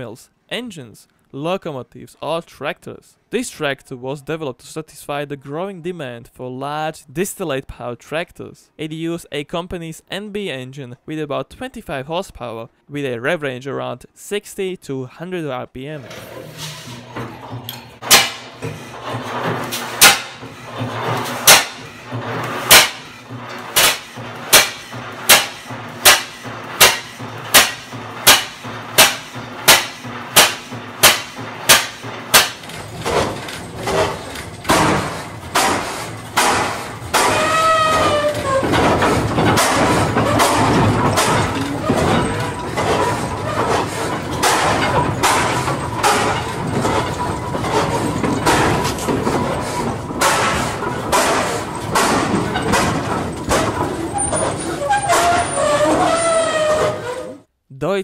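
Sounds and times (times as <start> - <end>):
engine running noise: 17.4 - 55.1
flywheel engine firing bangs: 17.4 - 57.0.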